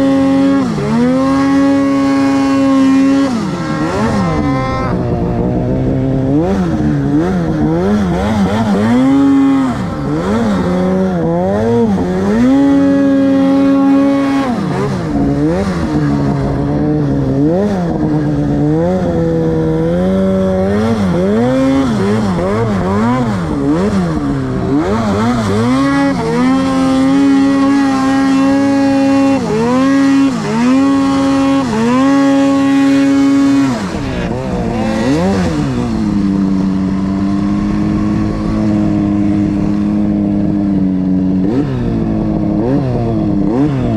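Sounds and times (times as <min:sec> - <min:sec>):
snowmobile engine revving: 0:00.0 - 0:43.9.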